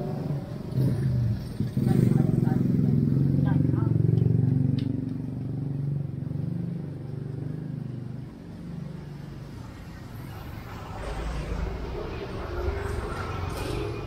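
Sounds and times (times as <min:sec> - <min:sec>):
vehicle engine passing by: 0:00.0 - 0:14.0.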